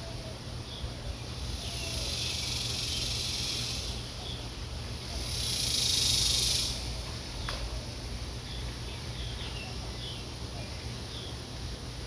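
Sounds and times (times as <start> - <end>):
high even hiss: 1.3 - 4.2.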